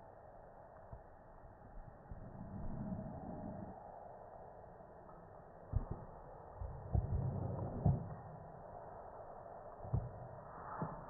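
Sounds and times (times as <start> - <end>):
low rumble: 1.7 - 4.3.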